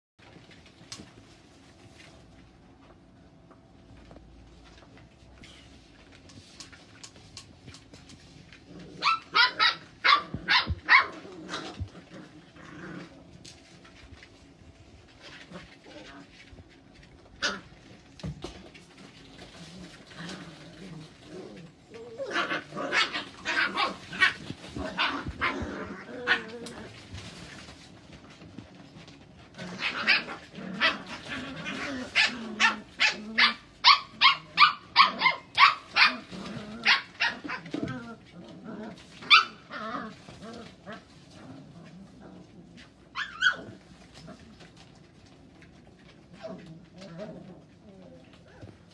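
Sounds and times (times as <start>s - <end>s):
puppies barking high: 8.9s - 12.1s, 22.0s - 27.0s, 29.7s - 37.9s, 39.1s - 40.6s, 43.1s - 43.9s.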